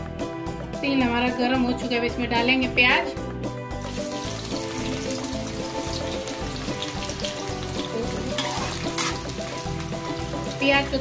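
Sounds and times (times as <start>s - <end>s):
onions sizzling in hot oil: 3.8s - 11.0s.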